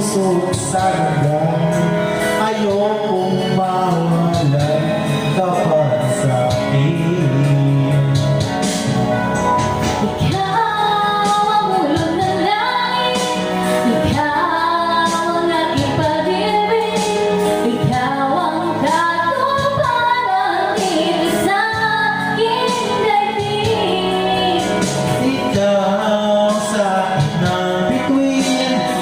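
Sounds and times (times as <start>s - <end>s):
instrumental accompaniment: 0.0s - 29.0s
woman singing a ballad: 10.0s - 29.0s.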